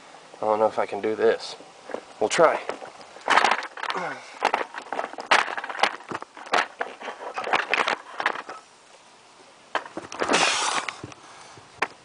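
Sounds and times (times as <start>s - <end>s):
clothing scraping against rock: 1.8s - 8.6s, 9.8s - 11.1s.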